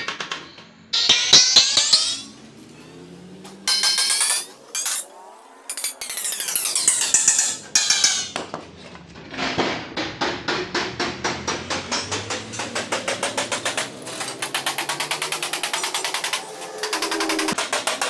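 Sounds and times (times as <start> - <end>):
hammer striking ringing sheet metal: 0.9 - 2.4, 3.7 - 5.0.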